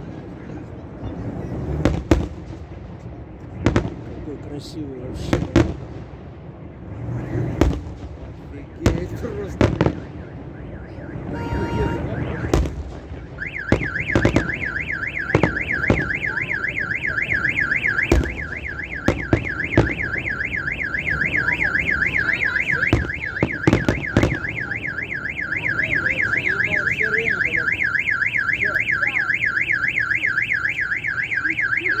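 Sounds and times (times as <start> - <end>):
fireworks bangs: 1.2 - 30.6
car alarm warbling: 8.7 - 32.0.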